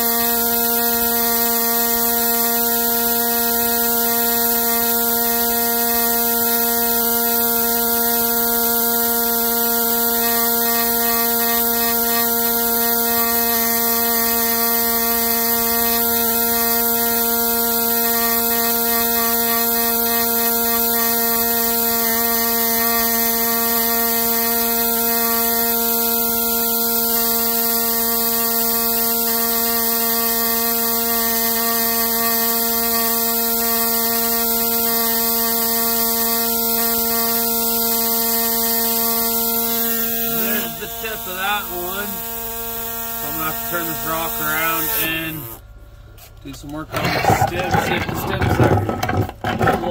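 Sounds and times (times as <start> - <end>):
steady electric buzz: 0.0 - 49.9
high hiss: 38.7 - 45.6.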